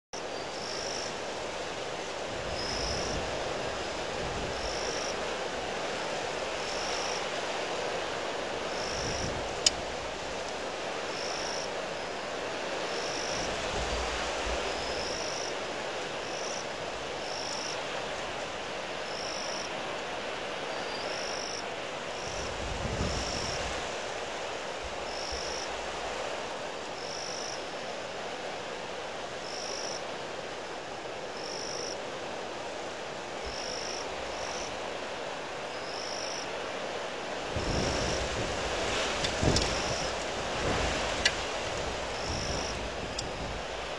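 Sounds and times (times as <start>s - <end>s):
strong wind on microphone: 1.2s - 7.2s, 8.6s - 10.4s, 12.8s - 15.4s, 22.2s - 26.2s, 37.4s - 43.9s.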